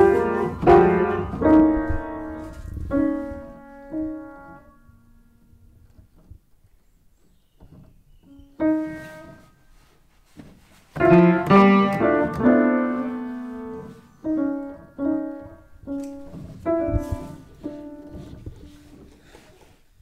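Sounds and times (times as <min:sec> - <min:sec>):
piano key clusters: 0:00.0 - 0:06.3, 0:11.0 - 0:19.3
piano notes: 0:00.0 - 0:06.4, 0:07.6 - 0:09.9, 0:10.9 - 0:19.6.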